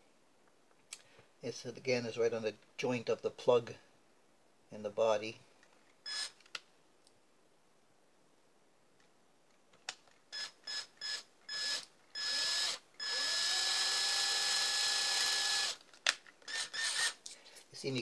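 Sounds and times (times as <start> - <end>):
cordless drill boring into wood: 6.1 - 6.4, 10.3 - 15.8, 16.5 - 17.2.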